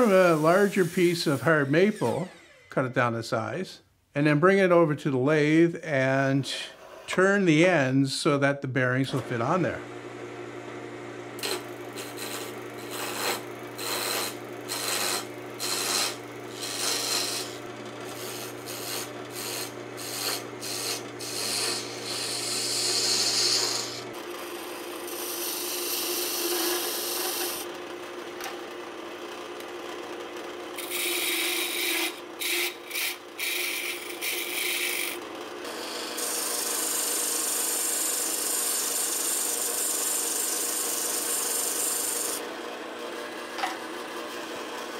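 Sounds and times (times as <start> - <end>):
lathe motor humming: 0.0 - 2.7, 9.2 - 28.3, 30.4 - 44.9
chisel scraping spinning wood: 0.0 - 2.8, 11.4 - 27.7, 30.8 - 42.5.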